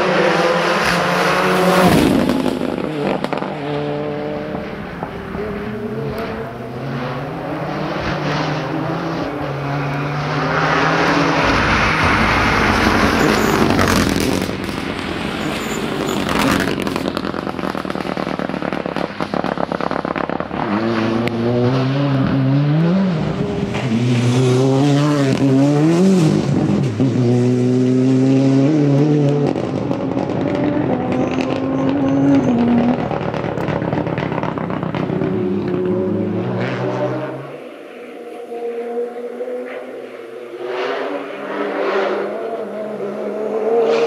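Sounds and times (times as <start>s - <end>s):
rally car engine revving: 0.0s - 44.0s
exhaust crackles and pops: 12.8s - 21.4s, 29.4s - 36.0s.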